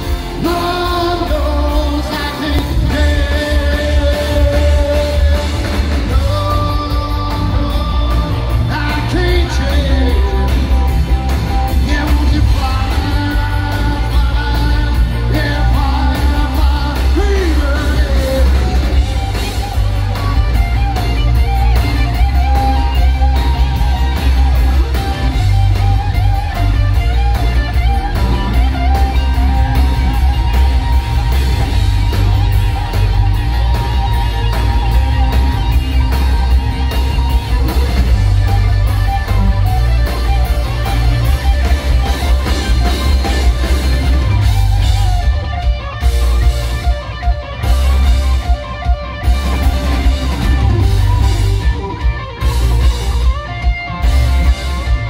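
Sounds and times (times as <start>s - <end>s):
person singing: 0.0s - 19.4s
bass guitar: 0.0s - 55.0s
drums: 0.0s - 55.0s
electric guitars: 0.0s - 55.0s.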